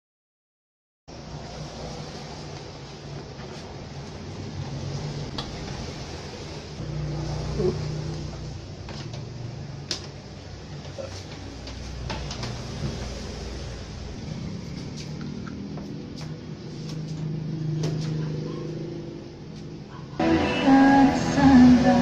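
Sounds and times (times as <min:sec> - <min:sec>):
television and cables clicking: 0:08.8 - 0:12.8.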